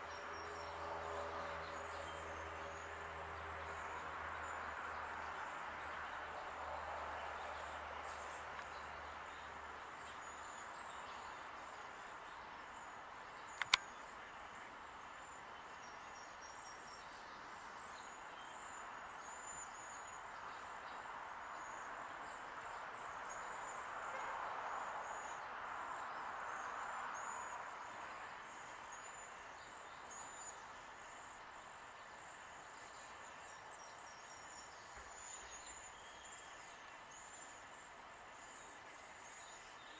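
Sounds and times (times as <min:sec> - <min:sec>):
sharp click: 0:13.5 - 0:13.9.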